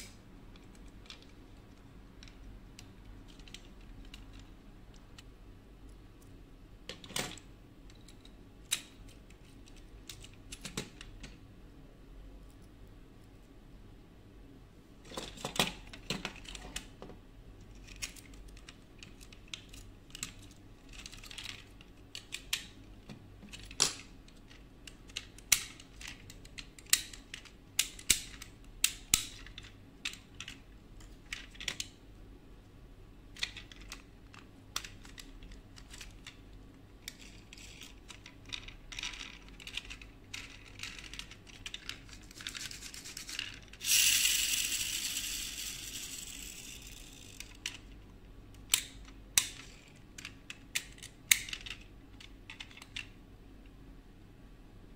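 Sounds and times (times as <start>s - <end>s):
toy car clicking on table: 42.6s - 47.8s.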